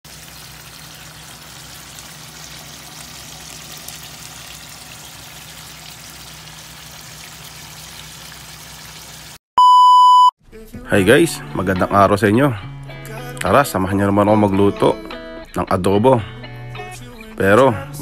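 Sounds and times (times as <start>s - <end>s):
sauce bubbling and crackling: 0.1s - 9.4s.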